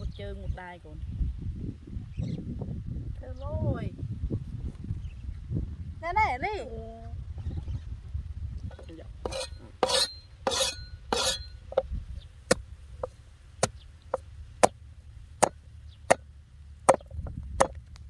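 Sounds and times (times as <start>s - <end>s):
cleaver chopping on wooden board: 9.3s - 11.4s, 15.4s - 16.2s, 16.8s - 17.8s.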